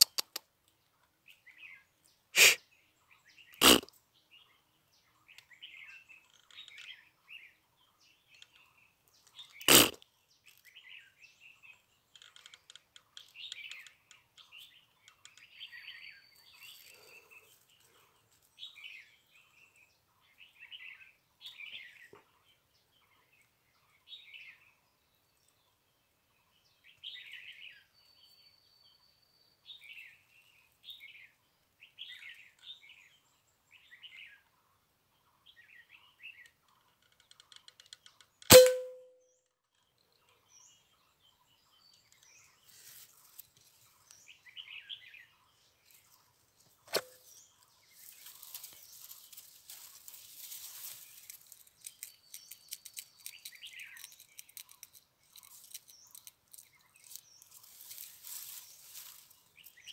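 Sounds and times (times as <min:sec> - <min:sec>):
small birds chirping: 0:00.0 - 0:59.9
air rifle shot: 0:38.5 - 0:39.0
faint rustling: 0:45.9 - 0:51.7, 0:57.0 - 0:59.6
quiet crack: 0:46.7 - 0:47.4.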